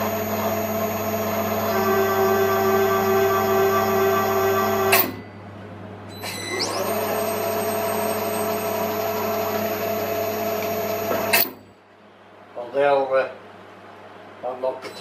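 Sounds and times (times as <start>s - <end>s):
milling machine spindle motor whine: 0.0s - 5.2s, 6.3s - 11.5s.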